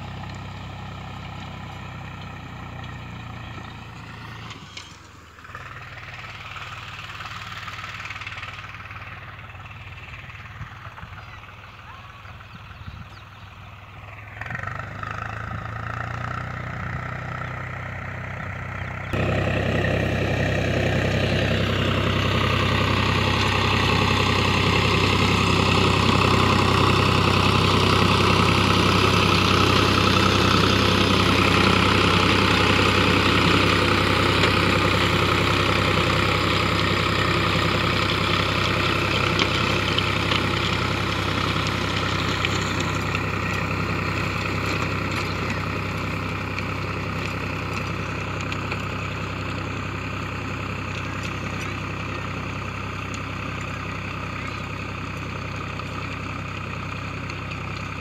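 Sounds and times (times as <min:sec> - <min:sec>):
tractor diesel engine running: 0:00.0 - 0:58.0
rotavator churning soil: 0:19.2 - 0:58.0.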